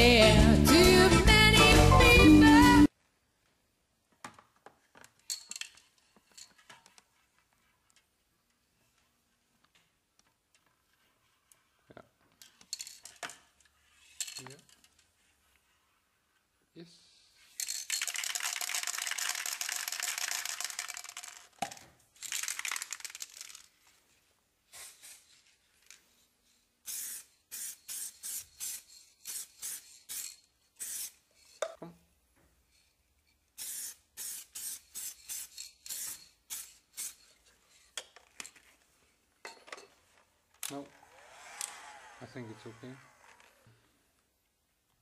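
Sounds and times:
aerosol spray can hissing: 26.9 - 31.2, 33.6 - 37.2.

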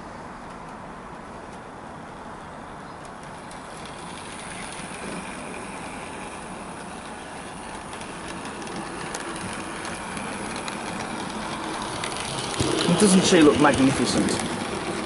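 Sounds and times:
wheels rumbling on rail: 0.0 - 15.0
model train motor hum: 3.0 - 15.0.

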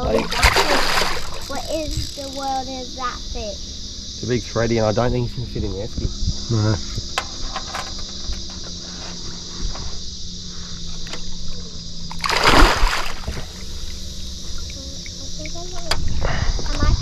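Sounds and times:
high insect buzz: 0.0 - 17.0
low steady hum: 0.0 - 17.0
loud water splash: 0.3 - 1.4, 12.2 - 13.4
small knocks: 7.0 - 8.9.

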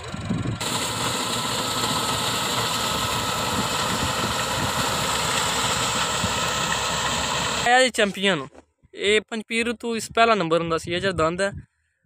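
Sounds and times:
tractor engine running: 0.0 - 7.9.

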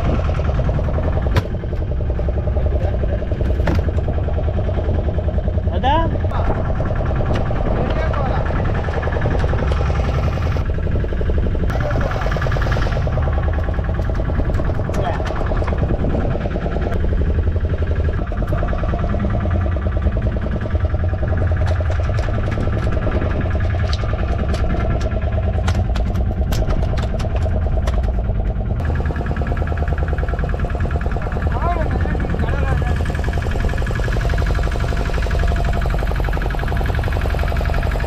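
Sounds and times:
boat engine rumbling: 0.0 - 38.0.

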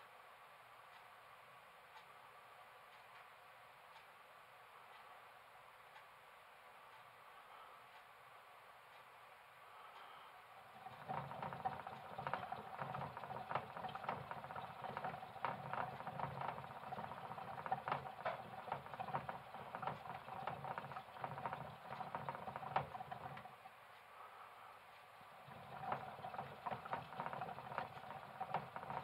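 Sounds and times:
faint steady whine: 0.0 - 29.0
hamster wheel rattling: 10.6 - 23.7, 25.1 - 29.0.

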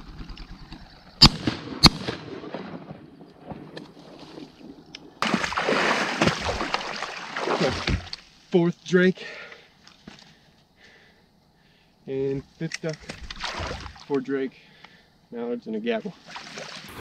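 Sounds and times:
shotgun shots: 1.2 - 2.9.

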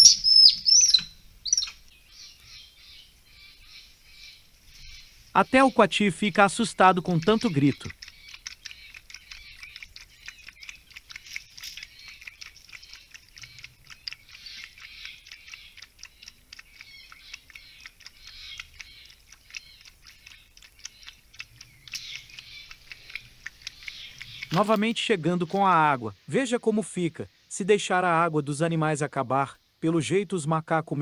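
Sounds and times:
animal lapping water: 5.6 - 25.1.

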